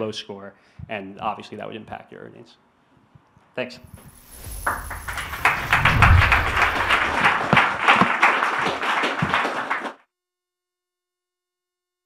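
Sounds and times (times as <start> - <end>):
audience applauding: 4.5 - 10.0.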